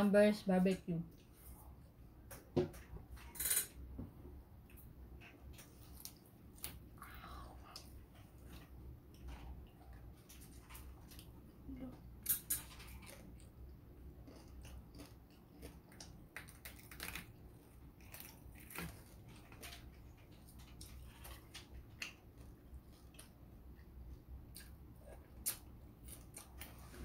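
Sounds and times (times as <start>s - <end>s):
person chewing crispy food: 4.7s - 11.5s, 12.2s - 27.0s.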